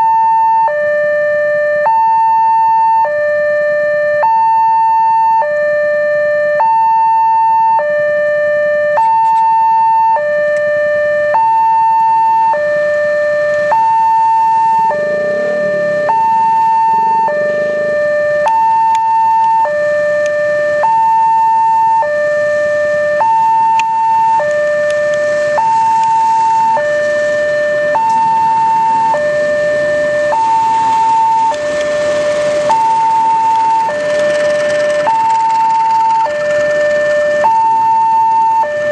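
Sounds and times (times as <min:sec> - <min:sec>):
level crossing two-tone alarm: 0:00.0 - 0:38.9
train passing: 0:14.2 - 0:19.1, 0:25.0 - 0:38.1.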